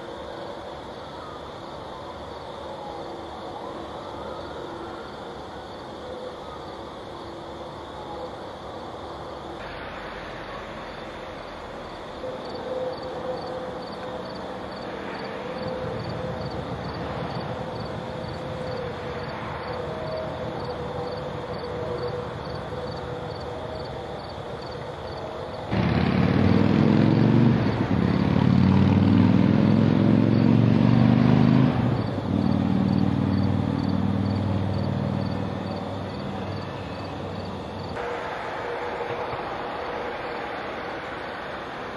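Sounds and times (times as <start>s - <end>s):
low background noise: 0.0s - 41.9s
passing vehicle engine rumble: 9.6s - 41.9s.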